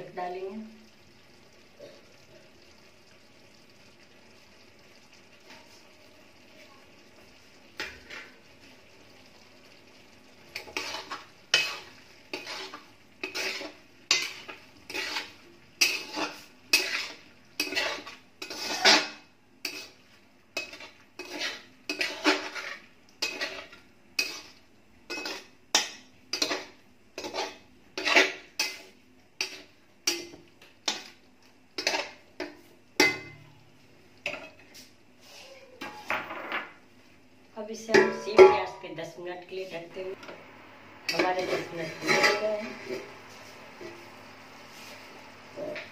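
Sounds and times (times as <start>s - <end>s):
onions frying: 0.0s - 45.9s
metal spatula scraping in pan: 7.8s - 8.4s, 10.5s - 31.2s, 31.8s - 33.4s, 37.8s - 39.0s, 41.1s - 45.9s.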